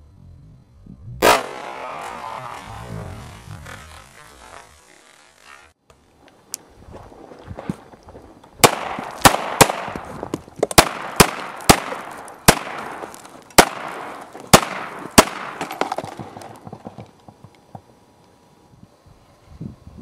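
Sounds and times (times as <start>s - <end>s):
pistol shots: 1.2s - 2.4s, 8.6s - 10.0s, 10.8s - 15.8s.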